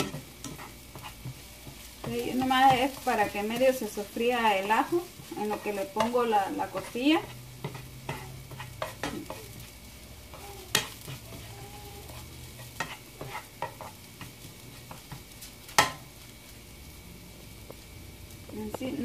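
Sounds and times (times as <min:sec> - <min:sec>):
tongs scraping and tapping pan: 0:00.0 - 0:09.7, 0:10.3 - 0:16.1
garlic sizzling in a frying pan: 0:00.0 - 0:19.0.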